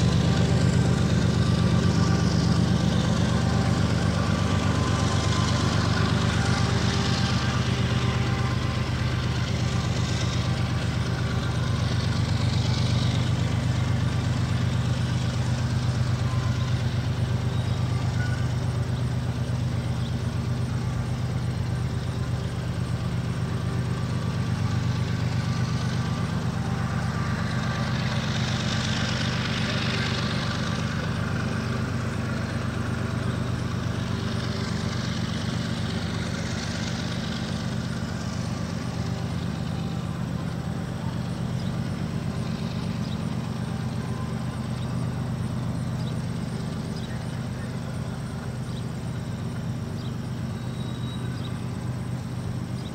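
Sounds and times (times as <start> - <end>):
locomotive engine low drone: 0.0 - 52.9.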